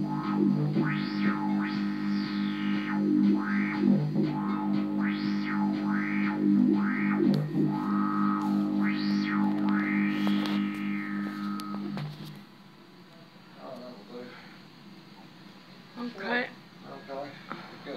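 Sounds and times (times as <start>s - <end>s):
pulsing low synthesizer drone: 0.0s - 12.2s
resonant filter sweeps: 0.0s - 12.3s.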